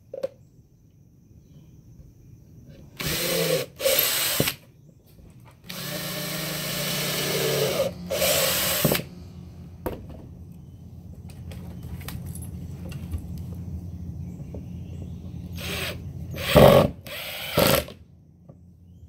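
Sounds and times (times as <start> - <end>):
cordless drill boring into wood: 3.0 - 4.6, 5.6 - 9.1, 15.6 - 18.0.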